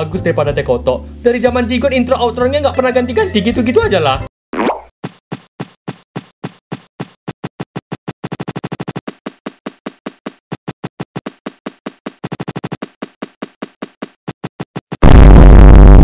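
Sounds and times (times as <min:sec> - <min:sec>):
looped clicking beat: 0:05.9 - 0:15.0
loud distorted sound effect: 0:14.9 - 0:16.0.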